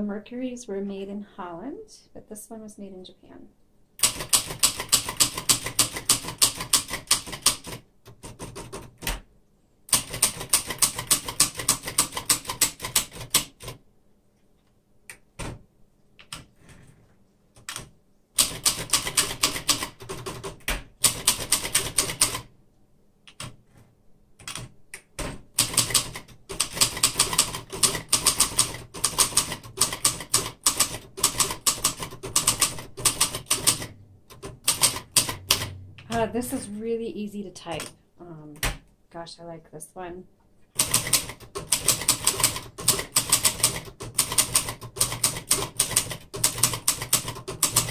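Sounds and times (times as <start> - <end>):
manual typewriter keys clacking: 4.0 - 9.2, 9.9 - 13.8, 17.6 - 22.5, 25.6 - 35.7, 40.8 - 47.9.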